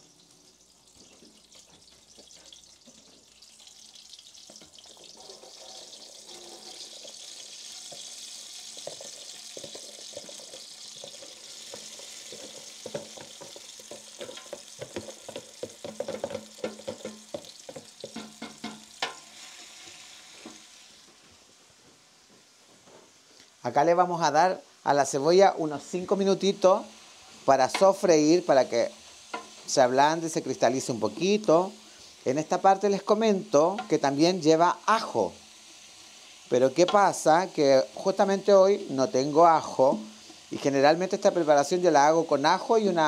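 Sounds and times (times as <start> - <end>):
onion sizzling in hot oil: 0.0 - 43.0
wooden spoon knocking and scraping: 8.7 - 19.2.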